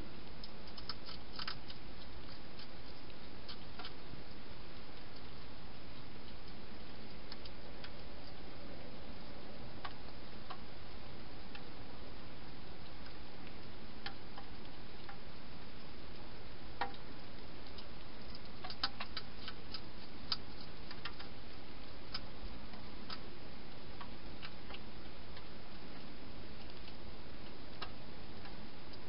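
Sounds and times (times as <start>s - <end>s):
steady hiss: 0.0s - 29.0s
hedgehog crunching dry food: 0.3s - 10.7s, 16.1s - 28.6s.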